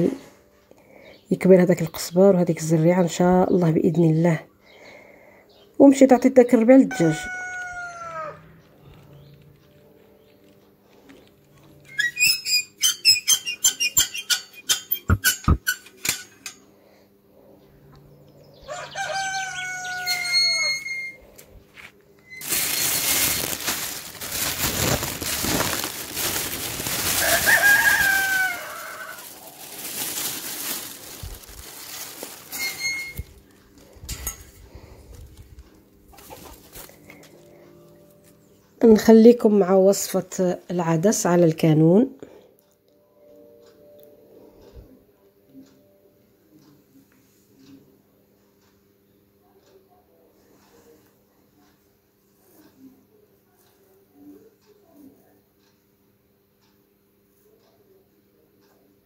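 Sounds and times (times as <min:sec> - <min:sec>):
rooster crowing: 0:06.9 - 0:08.6, 0:18.6 - 0:21.2, 0:26.9 - 0:29.6
plastic bag rustling: 0:21.8 - 0:37.3.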